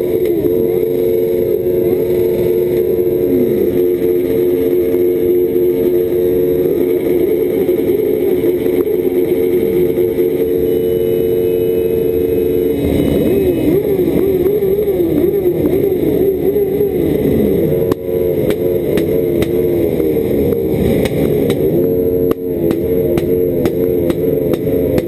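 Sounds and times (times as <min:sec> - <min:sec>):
motorcycle engines revving: 0:00.0 - 0:25.0.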